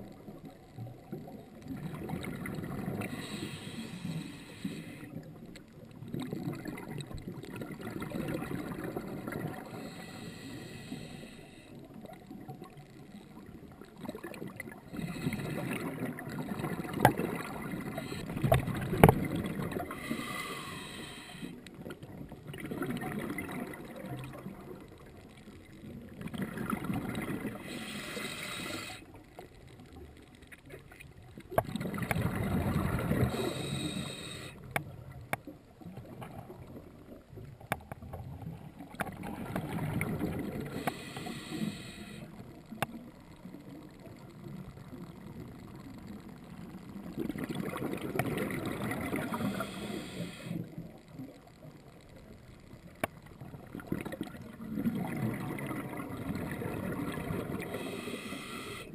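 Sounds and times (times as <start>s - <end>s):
exhaled bubbles gurgling underwater: 0.0s - 58.9s
regulator inhalation hisses: 3.0s - 5.3s, 9.7s - 11.8s, 19.8s - 21.6s, 27.5s - 29.2s, 33.2s - 34.7s, 40.7s - 42.4s, 49.2s - 50.7s, 57.6s - 58.9s.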